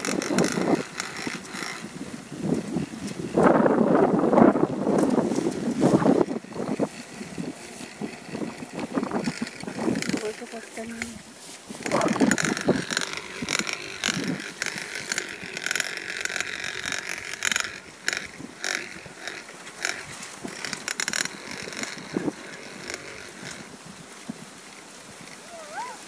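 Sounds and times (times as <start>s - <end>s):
gears clicking: 0.0s - 1.9s, 5.9s - 11.2s, 11.8s - 23.7s
hand-cranked blower whirring hiss: 0.0s - 23.8s.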